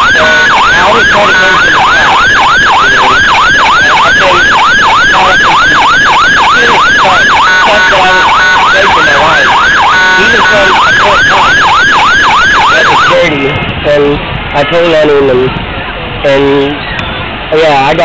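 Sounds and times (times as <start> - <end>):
emergency siren yelping: 0.0 - 13.5
steady siren blaring tone: 0.0 - 14.0.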